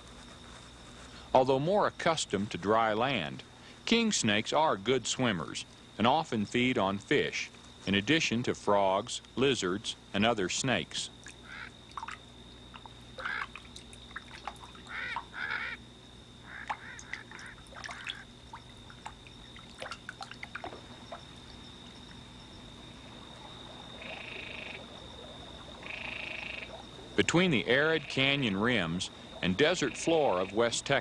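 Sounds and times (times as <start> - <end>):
frogs calling: 1.1 - 31.0
water trickling and splashing: 11.2 - 15.8, 16.5 - 31.0.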